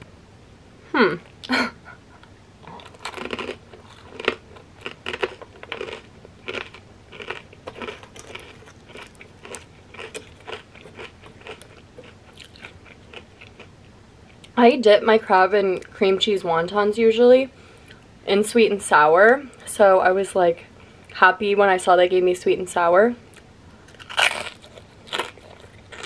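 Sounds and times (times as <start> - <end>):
crunching and chewing fried food: 2.6 - 14.6, 23.3 - 26.0.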